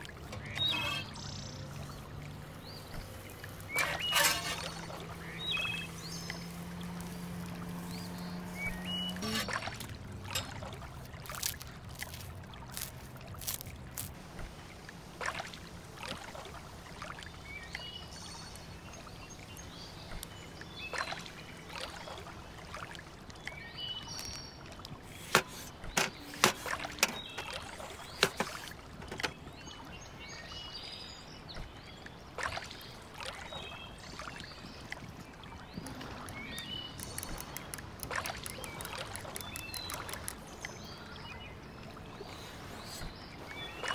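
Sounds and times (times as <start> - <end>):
birds chirping: 0.0 - 14.1, 23.4 - 43.9
squeeze bottle squeezing: 3.7 - 4.8, 9.2 - 10.5, 25.1 - 29.4.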